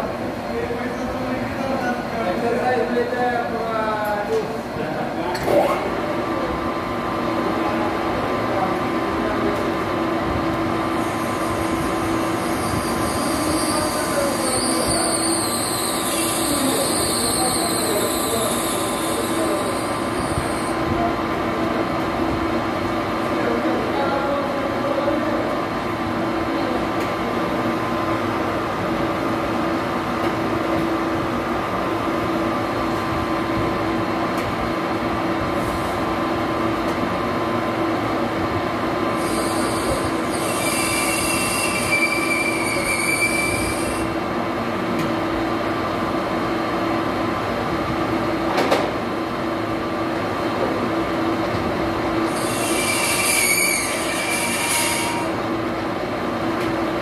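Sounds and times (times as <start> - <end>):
cutting tool squealing: 39.2 - 44.0, 52.3 - 55.3.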